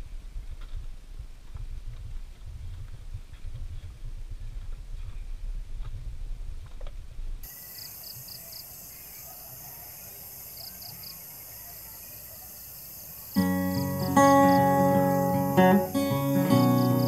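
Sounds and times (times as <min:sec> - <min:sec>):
insects hissing and chirping: 0:07.4 - 0:17.0
strummed acoustic guitar music: 0:13.4 - 0:17.0.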